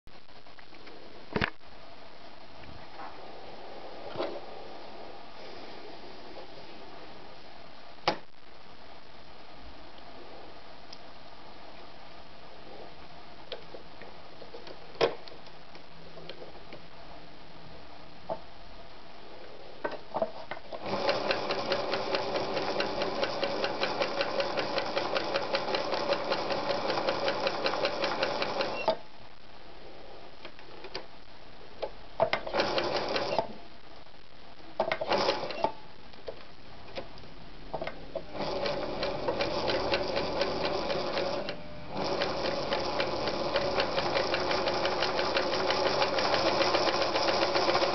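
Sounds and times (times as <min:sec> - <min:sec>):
sewing machine stitching: 0:20.8 - 0:29.0, 0:32.4 - 0:33.5, 0:35.0 - 0:35.7, 0:38.3 - 0:47.9.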